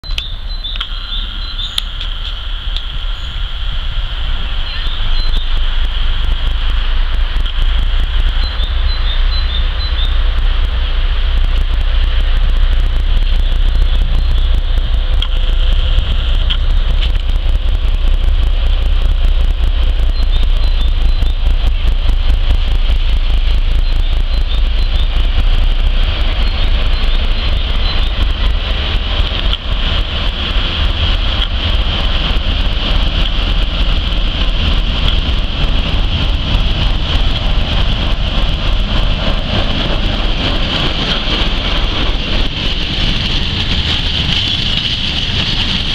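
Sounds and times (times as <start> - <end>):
diesel locomotive engine: 0.0 - 45.9
freight wagons clattering over rails: 19.7 - 45.9.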